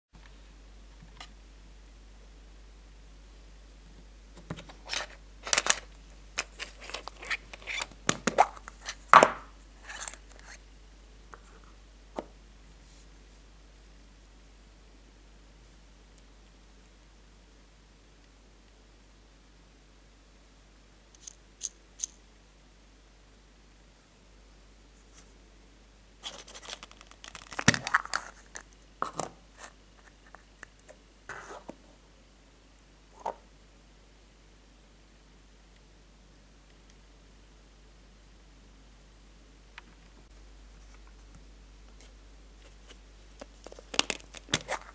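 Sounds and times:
plastic egg scraping and clicking: 0:04.6 - 0:09.0, 0:09.8 - 0:10.6, 0:26.2 - 0:31.0, 0:42.8 - 0:44.9
plastic capsule snapping open: 0:43.6 - 0:44.9.

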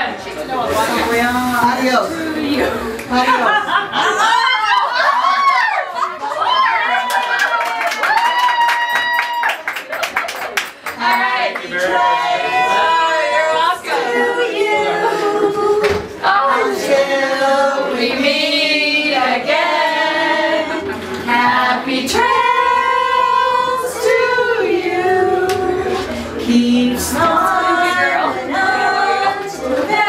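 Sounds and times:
group singing without accompaniment: 0:11.0 - 0:30.0.

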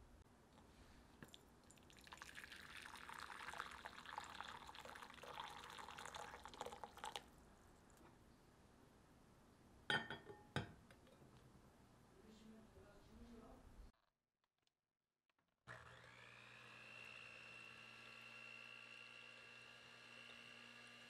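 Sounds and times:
hot water pouring into bowl: 0:01.2 - 0:07.3
glass-on-glass clinks: 0:09.9 - 0:10.8.

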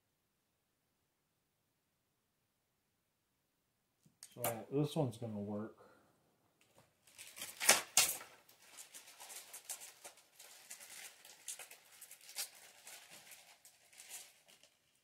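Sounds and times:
small parts clicking and rustling: 0:06.6 - 0:15.0.

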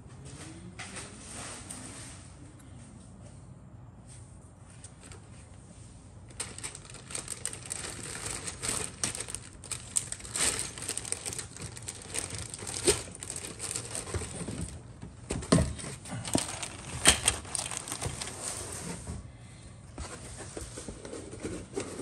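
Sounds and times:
plastic bag crinkling: 0:06.2 - 0:18.9.

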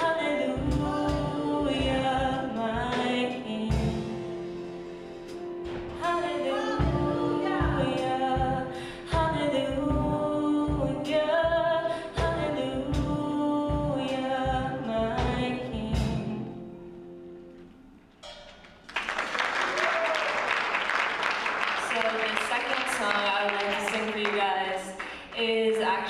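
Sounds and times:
woman singing gospel song: 0:00.0 - 0:04.6, 0:05.9 - 0:16.8, 0:21.9 - 0:26.0
drums: 0:00.0 - 0:16.6
keyboard: 0:00.0 - 0:18.4.

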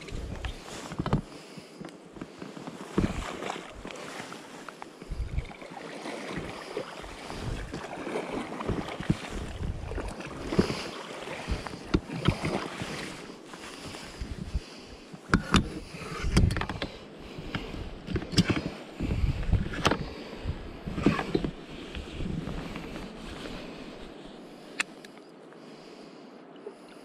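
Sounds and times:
wind on microphone: 0:00.0 - 0:01.3, 0:02.9 - 0:04.2, 0:05.0 - 0:24.4
water lapping against pontoons: 0:00.0 - 0:24.6
oar splashes and knocks: 0:02.2 - 0:14.6.

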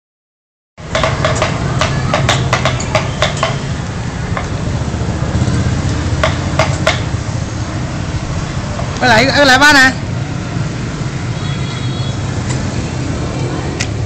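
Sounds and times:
motorbike engine idling: 0:00.8 - 0:07.8.

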